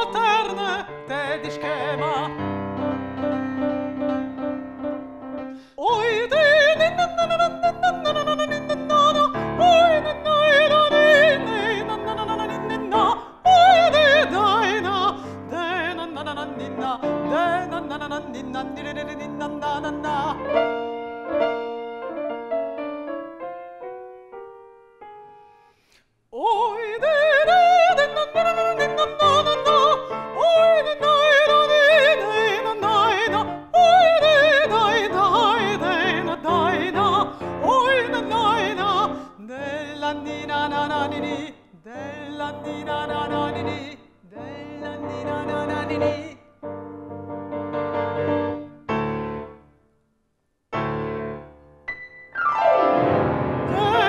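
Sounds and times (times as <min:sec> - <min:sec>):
woman singing with vibrato: 0:00.0 - 0:02.6, 0:05.7 - 0:20.7, 0:26.4 - 0:46.4, 0:53.7 - 0:54.0
grand piano accompaniment: 0:00.0 - 0:25.6, 0:27.1 - 0:49.8, 0:50.7 - 0:54.0.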